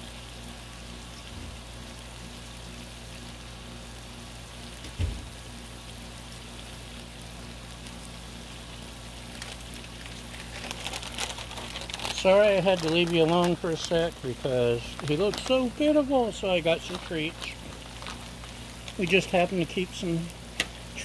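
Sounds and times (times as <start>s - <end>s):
food sizzling on a griddle: 0.0s - 21.0s
low thump: 4.9s - 5.3s.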